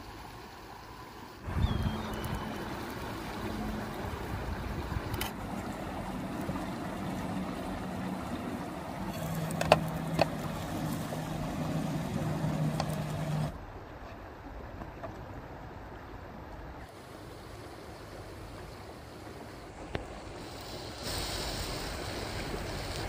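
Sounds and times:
low engine hum: 0.0s - 13.8s
river flowing: 0.0s - 23.0s.

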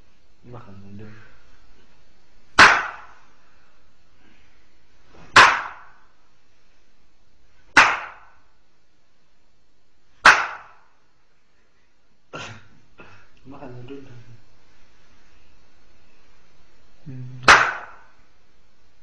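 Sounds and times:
sharp smacks: 2.6s - 3.2s, 5.1s - 6.1s, 7.7s - 8.4s, 10.2s - 10.9s, 17.4s - 18.2s.

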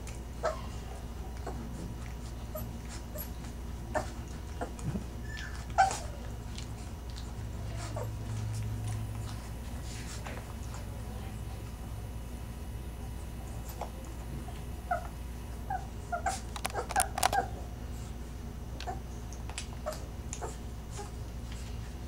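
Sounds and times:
low steady hum: 0.0s - 22.0s
puppies squeaking and whimpering: 2.3s - 6.3s, 14.9s - 17.6s.

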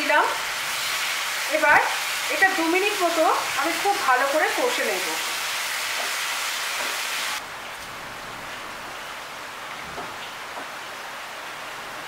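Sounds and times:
food sizzling in hot oil: 0.0s - 7.4s.

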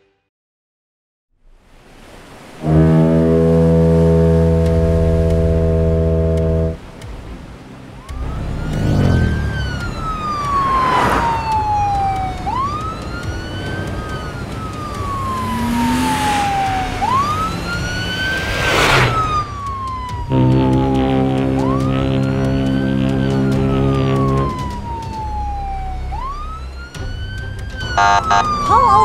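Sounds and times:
rushing vehicle noise: 3.6s - 29.0s
police siren wailing: 7.9s - 29.0s.

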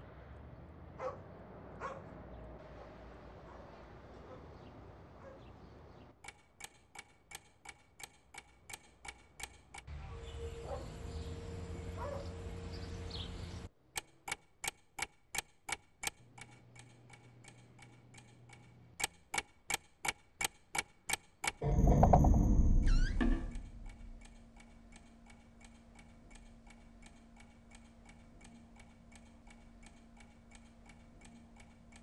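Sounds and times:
clock ticking fast: 6.2s - 9.9s, 14.0s - 21.6s, 23.5s - 32.0s
low hum with high tone: 9.9s - 13.7s, 21.6s - 29.9s.

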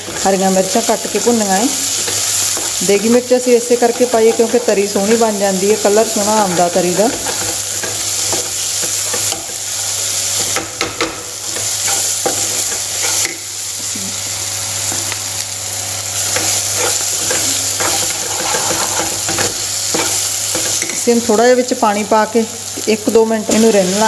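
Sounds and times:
metal spoon scraping a pan: 0.0s - 9.7s, 10.4s - 13.5s, 16.2s - 21.1s
food sizzling in hot oil: 0.0s - 24.0s.

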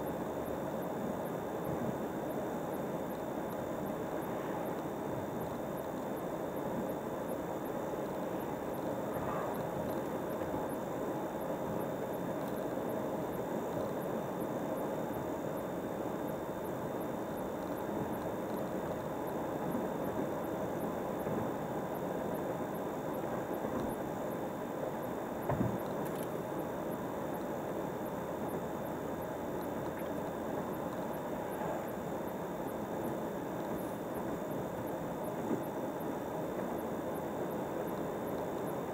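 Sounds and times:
brief thump: 25.5s - 25.8s.

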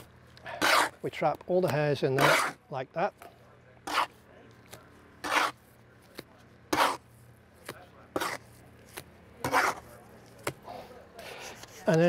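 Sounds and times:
trowel scraping plaster: 0.5s - 1.1s, 2.1s - 2.6s, 3.8s - 4.2s, 5.2s - 5.7s, 6.7s - 7.1s, 8.1s - 10.4s.

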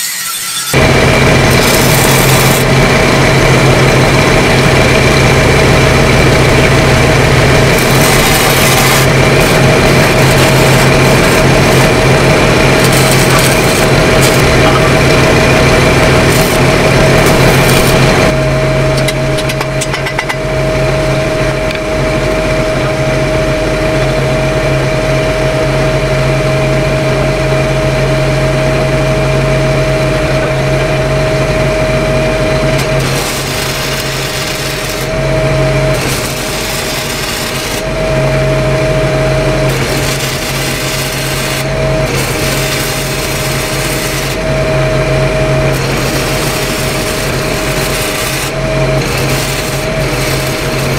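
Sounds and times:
stick welding arc crackle: 0.0s - 20.0s, 32.4s - 50.9s
welding machine engines humming: 0.0s - 50.9s.

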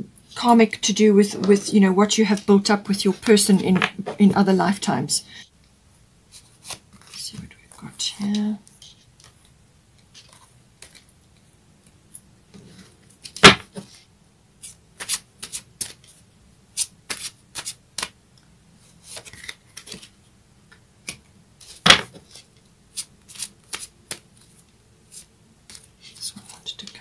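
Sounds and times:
cards being shuffled: 6.3s - 7.3s, 10.2s - 11.1s, 14.6s - 16.2s, 16.8s - 18.2s, 18.9s - 20.2s, 21.0s - 27.0s.

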